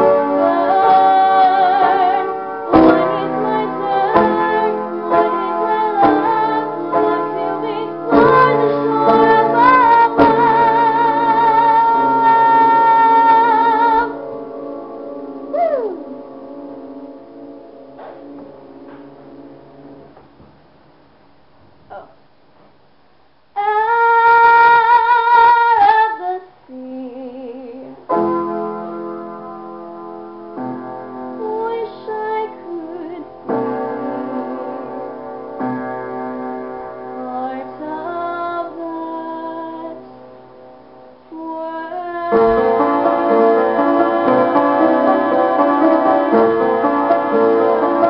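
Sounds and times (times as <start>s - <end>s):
woman singing: 0.0s - 14.2s, 23.6s - 28.2s, 31.4s - 33.6s, 37.2s - 40.1s, 41.3s - 43.4s
piano chords: 0.0s - 48.0s.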